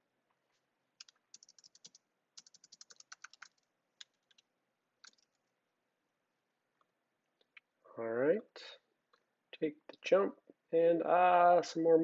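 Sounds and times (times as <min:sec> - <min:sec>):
typing on a keyboard: 0:01.0 - 0:04.4, 0:05.0 - 0:05.4.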